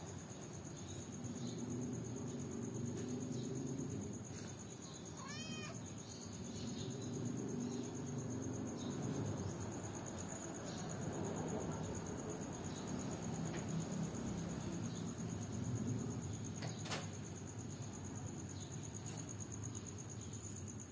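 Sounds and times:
cat meowing: 5.1s - 5.9s.

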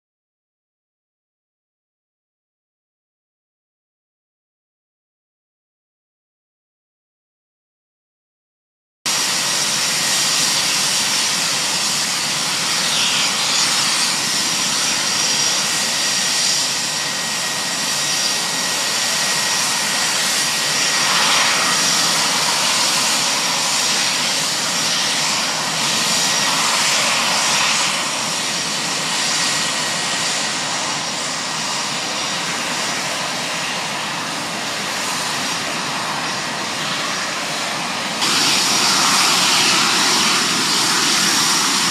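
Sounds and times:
fighter jet engines roaring: 9.1s - 41.9s
high steady whine: 9.1s - 41.9s.

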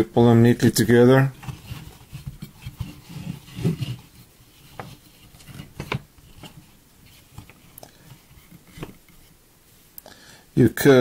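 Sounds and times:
rope rustling over wood: 1.3s - 9.8s.

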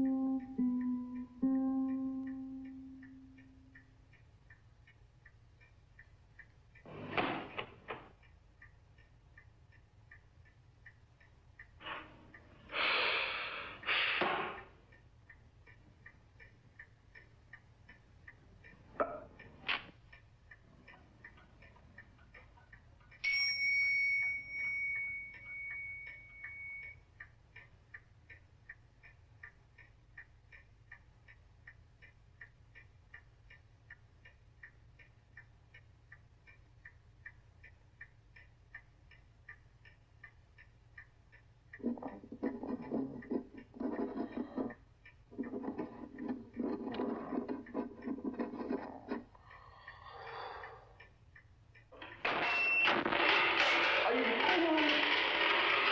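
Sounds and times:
clock ticking: 0.0s - 55.9s
bell-like ding: 23.3s - 26.9s.

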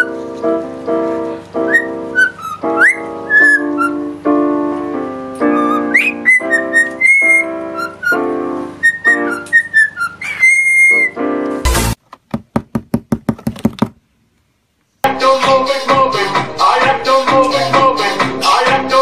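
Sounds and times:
cockatiel whistling: 0.0s - 0.2s, 1.6s - 4.1s, 5.4s - 11.2s
digital piano chords: 0.0s - 12.0s.

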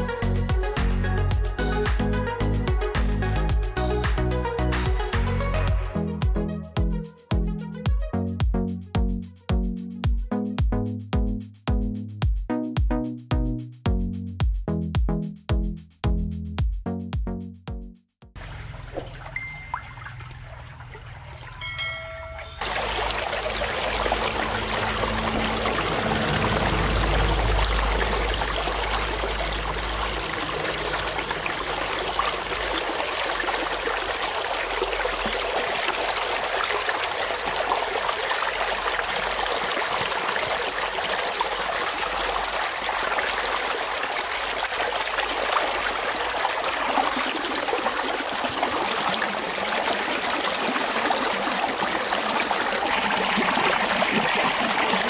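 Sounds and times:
water rushing and splashing: 18.4s - 55.0s
low rumble: 23.9s - 31.9s.

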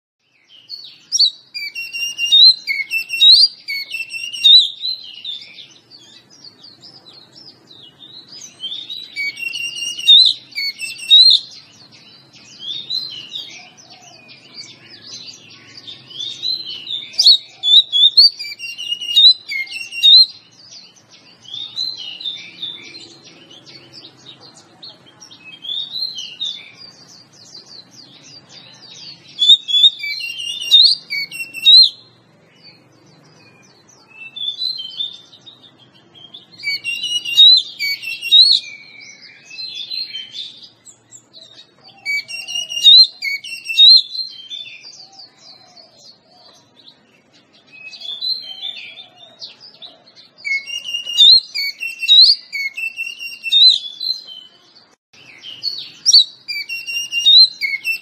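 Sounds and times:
bird singing whistles and chirps: 0.2s - 58.0s.

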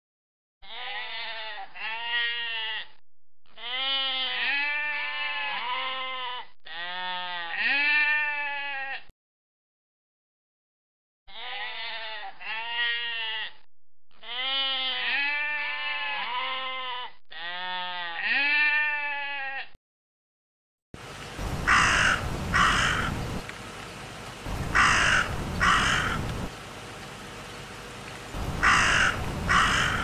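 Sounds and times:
sheep bleating: 0.6s - 9.1s, 11.3s - 19.8s, 28.6s - 30.0s
crow cawing: 21.6s - 23.4s, 24.6s - 26.5s, 28.5s - 30.0s.

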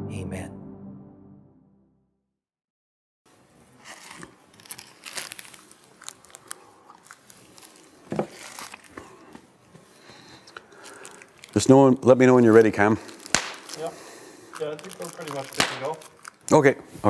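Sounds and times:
plastic cup crinkling: 3.7s - 16.7s.

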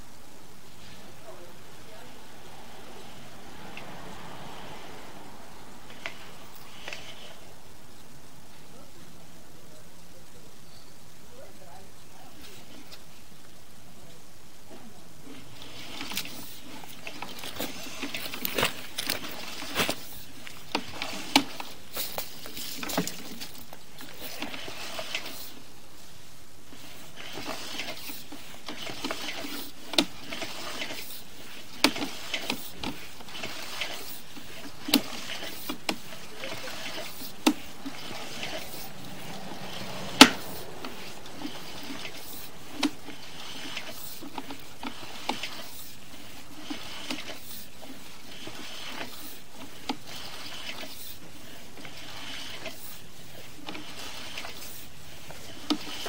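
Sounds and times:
steady hiss: 0.0s - 56.0s
cable clicking and knocking: 27.2s - 45.9s.

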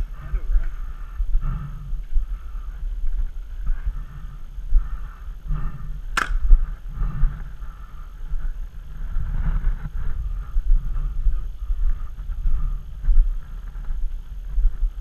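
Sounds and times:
footsteps and rustling gear: 0.0s - 15.0s
sharp crack: 6.2s - 6.5s.

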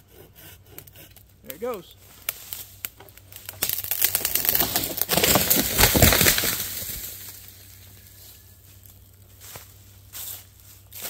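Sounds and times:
wood cracking and branches snapping: 1.1s - 8.1s
tree trunk crashing down: 2.9s - 8.0s.

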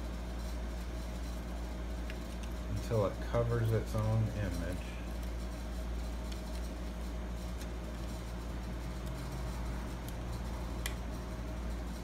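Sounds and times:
low background hum: 0.0s - 12.0s
faint clicks and taps: 2.0s - 2.7s, 6.0s - 6.8s, 7.4s - 8.2s, 8.8s - 11.1s.

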